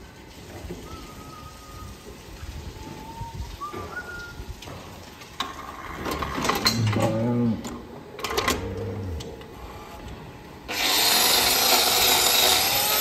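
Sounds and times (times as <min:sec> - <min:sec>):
faint thin whistled notes: 0:00.8 - 0:02.0, 0:02.8 - 0:04.5.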